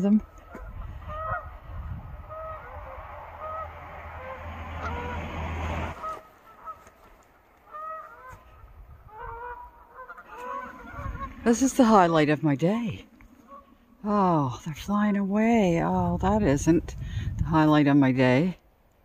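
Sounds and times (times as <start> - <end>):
geese honking: 0.0 - 14.2.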